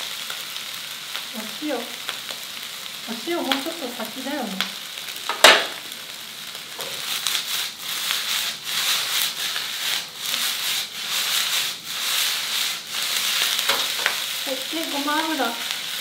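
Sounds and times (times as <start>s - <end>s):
rice sizzling in a wok: 0.0s - 16.0s
spatula scraping a wok: 6.7s - 16.0s.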